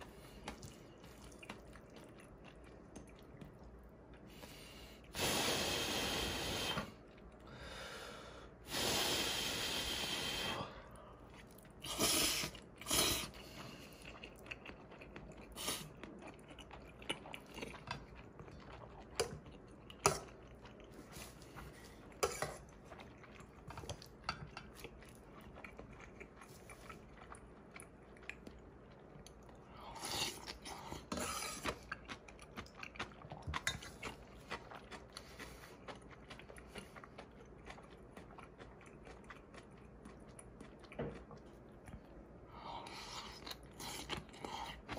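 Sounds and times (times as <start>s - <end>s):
chewing: 0.0s - 5.1s, 10.9s - 44.9s
slurping noodles: 5.1s - 7.0s, 11.8s - 14.2s.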